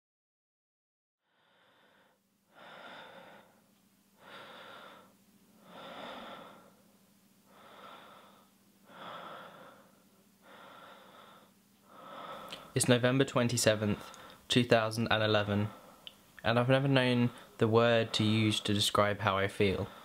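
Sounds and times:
faint slow breathing: 0:01.2 - 0:12.8, 0:13.8 - 0:14.5, 0:15.4 - 0:16.2, 0:17.3 - 0:18.3.

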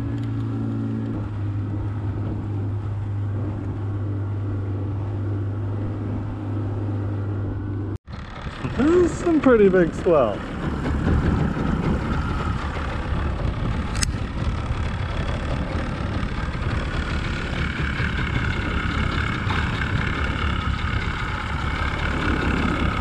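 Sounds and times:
boat motor running: 0:00.0 - 0:23.0
sharp click: 0:13.9 - 0:14.2.

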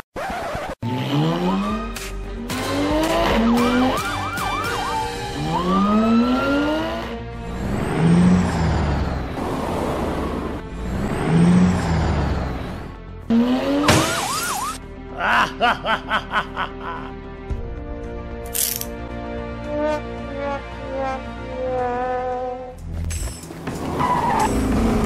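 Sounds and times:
car engine revving: 0:00.8 - 0:14.8, 0:23.7 - 0:25.0
heavy vehicle rushing: 0:02.6 - 0:14.8
police siren wailing: 0:02.9 - 0:09.0.

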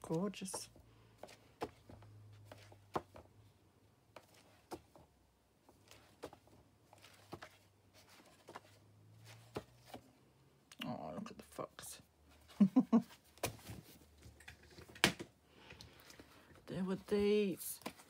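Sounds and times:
book pages turning: 0:00.0 - 0:03.3, 0:04.1 - 0:10.1, 0:13.3 - 0:18.0.

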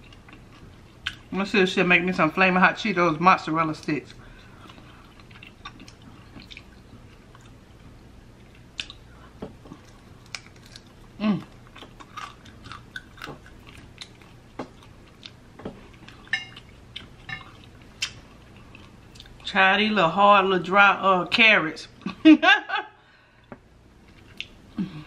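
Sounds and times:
crunchy chewing: 0:04.4 - 0:19.4.

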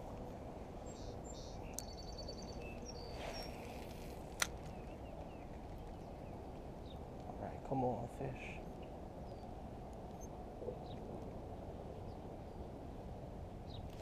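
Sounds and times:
low background noise: 0:00.0 - 0:14.0
small birds chirping: 0:00.2 - 0:13.0
bird trilling: 0:00.9 - 0:03.9.

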